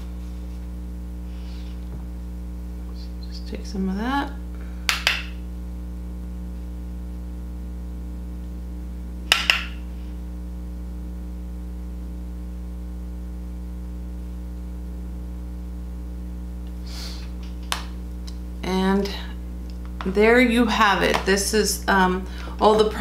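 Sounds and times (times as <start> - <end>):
low room hum: 0.0 - 23.0
sharp double click: 9.3 - 9.8.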